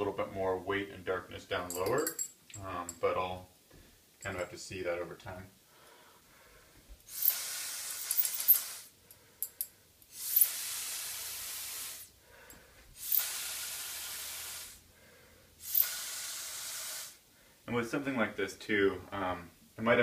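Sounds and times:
atomizer spraying hiss: 0:07.0 - 0:09.0, 0:10.1 - 0:12.2, 0:13.0 - 0:14.8, 0:15.6 - 0:17.2.

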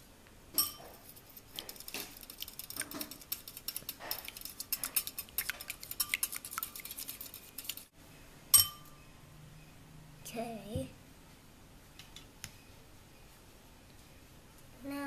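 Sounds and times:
fork clinking in bowl: 0:00.6 - 0:06.9, 0:08.6 - 0:08.9.

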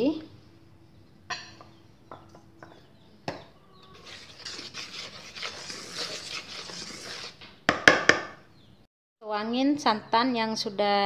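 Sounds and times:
spoon scraping flour in bowl: 0:03.9 - 0:07.4.

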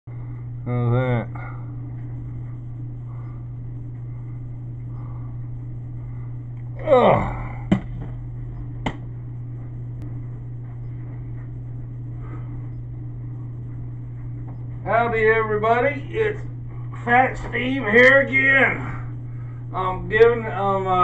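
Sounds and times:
low electrical hum: 0:00.1 - 0:21.0.

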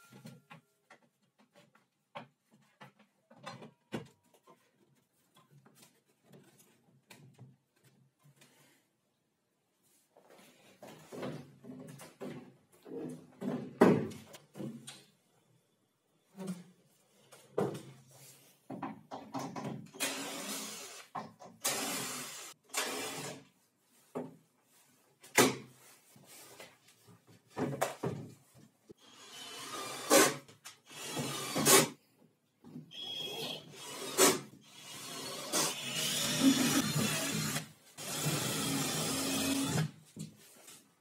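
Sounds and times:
knocks and thuds of wooden panels: 0:11.0 - 0:14.9, 0:18.7 - 0:20.0.

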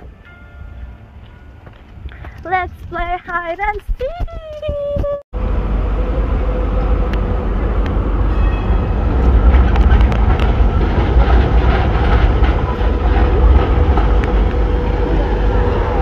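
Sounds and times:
tram rumbling on rails: 0:00.0 - 0:16.0
sharp rail clicks: 0:09.1 - 0:15.1.

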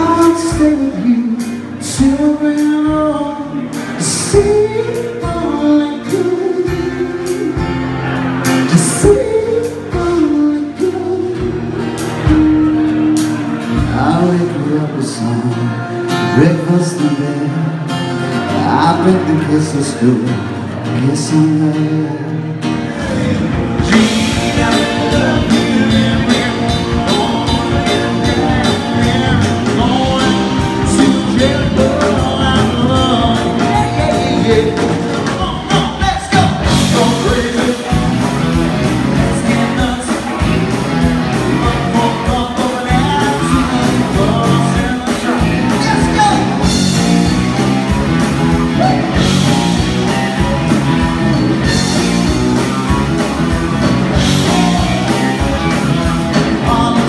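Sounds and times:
man singing lead vocal: 0:00.0 - 0:13.0, 0:13.6 - 0:47.4, 0:48.4 - 0:50.7, 0:53.8 - 0:57.0
rock band playing: 0:00.0 - 0:57.0.

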